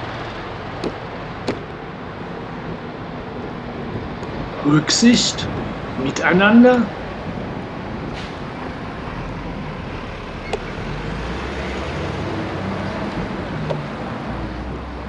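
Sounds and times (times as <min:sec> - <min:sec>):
road traffic: 0:00.0 - 0:15.0
truck diesel engine drone: 0:00.0 - 0:15.0.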